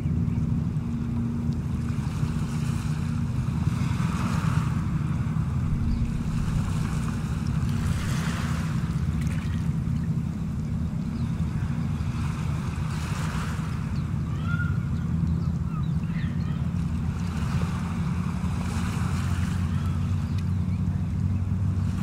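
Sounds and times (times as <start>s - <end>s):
low hum: 0.0s - 11.8s
wind rumbling on microphone: 0.6s - 11.8s.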